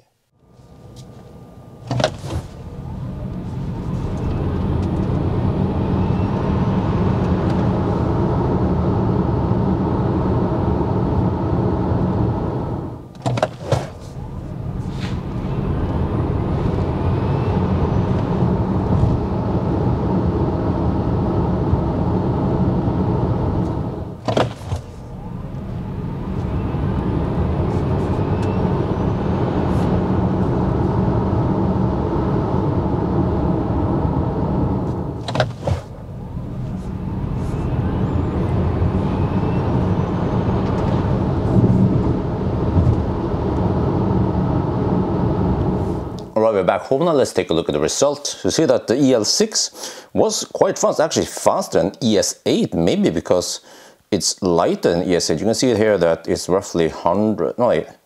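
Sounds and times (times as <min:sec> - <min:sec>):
tyre and road rumble: 0:13.1 - 0:21.5, 0:23.3 - 0:46.2
electric motor whine: 0:14.1 - 0:24.2, 0:24.8 - 0:46.2.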